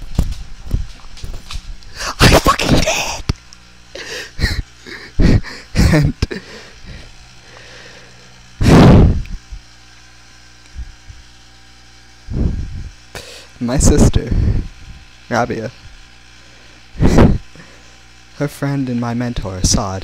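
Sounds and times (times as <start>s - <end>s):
microphone handling thumps: 0.0s - 1.8s.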